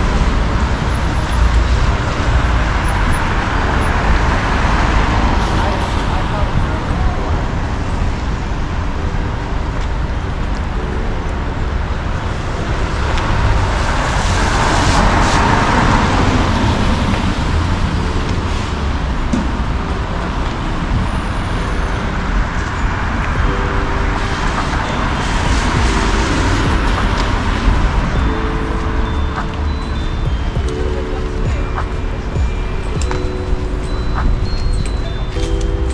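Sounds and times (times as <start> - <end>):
cars passing on street: 0.0 - 35.9.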